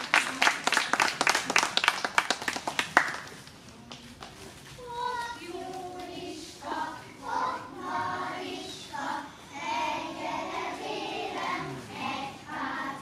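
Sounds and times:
children singing together: 5.4 - 13.0.

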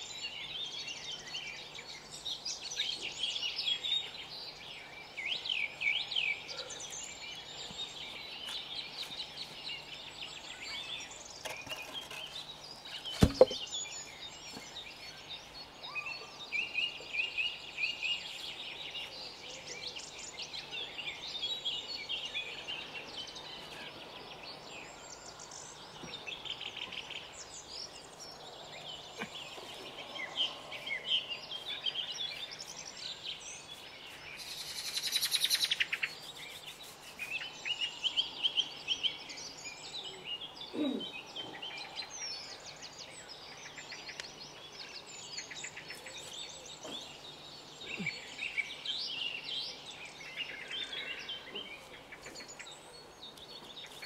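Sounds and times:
songbirds singing and calling: 0.0 - 54.0
sharp knock: 13.2 - 13.6.

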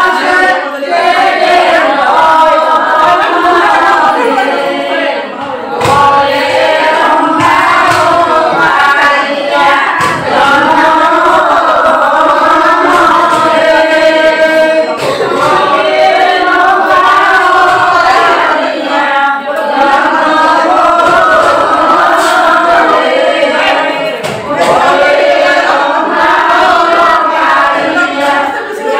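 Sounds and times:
group singing a hymn: 0.0 - 28.9.

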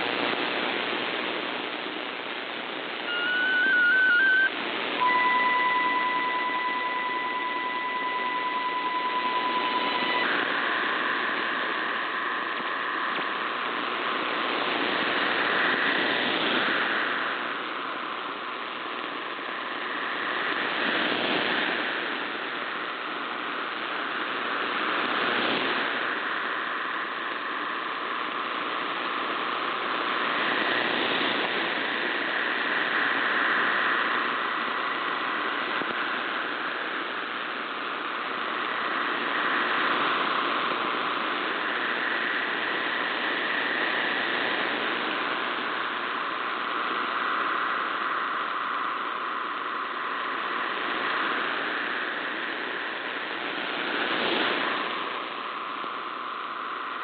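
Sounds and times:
radio static: 0.0 - 57.0
dense wash of digital tones: 2.9 - 23.2
two steady tones: 3.0 - 15.8.

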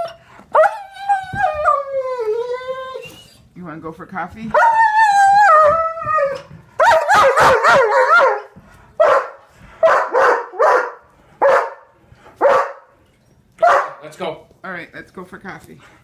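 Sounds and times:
dog yelping: 4.5 - 11.8
dog barking: 6.8 - 12.9, 13.6 - 14.0.

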